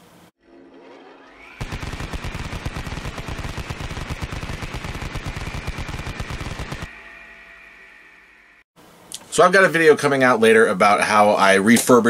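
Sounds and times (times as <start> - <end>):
rising whine: 0.4 - 8.7
steady whine: 0.4 - 9.3
machine-gun shots: 1.6 - 6.9.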